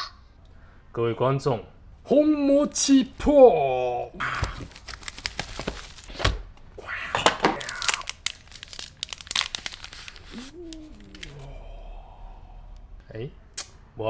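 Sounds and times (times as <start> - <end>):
plastic packaging crinkling: 4.3 - 6.3, 7.1 - 11.5
wordless voice sound: 10.2 - 13.7.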